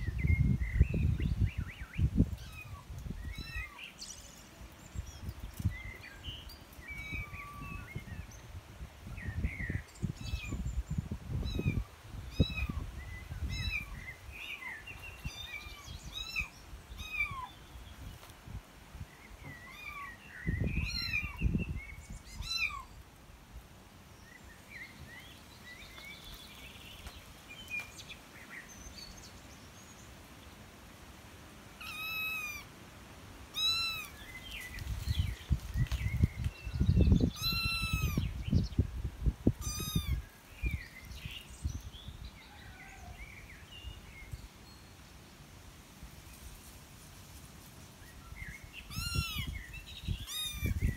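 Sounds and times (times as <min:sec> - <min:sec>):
faint short chirping calls: 0:01.6 - 0:08.4, 0:33.6 - 0:38.6, 0:39.6 - 0:41.9, 0:48.5 - 0:50.9
kittens mewing: 0:31.8 - 0:32.7, 0:33.6 - 0:34.1, 0:37.4 - 0:38.2, 0:39.6 - 0:40.2, 0:48.9 - 0:49.5.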